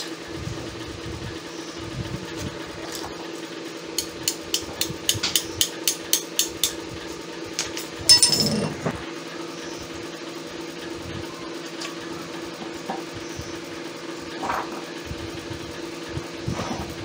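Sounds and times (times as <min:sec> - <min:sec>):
ringing metal clank: 0:08.1 - 0:08.8.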